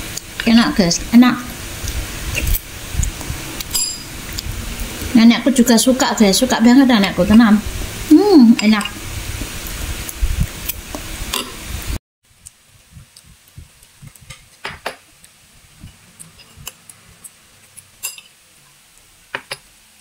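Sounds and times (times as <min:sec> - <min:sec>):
loud steady hiss: 0:00.0 - 0:20.0
spoon clinking ceramic bowl: 0:18.0 - 0:18.3.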